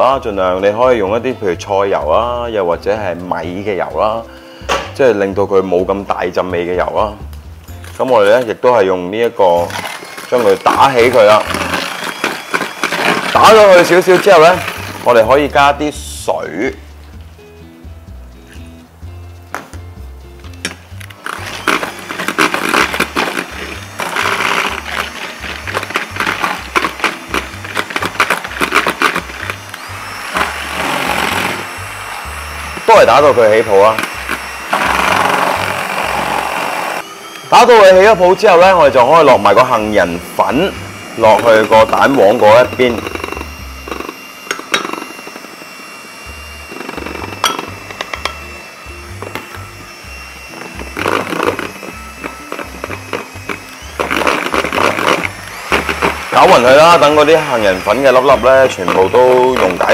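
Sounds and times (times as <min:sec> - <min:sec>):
background music with bass: 0:00.0 - 0:09.8, 0:13.3 - 0:36.8
hand mixer beaters rattling in bowl: 0:09.3 - 0:15.6, 0:21.2 - 0:37.0, 0:37.6 - 0:59.9.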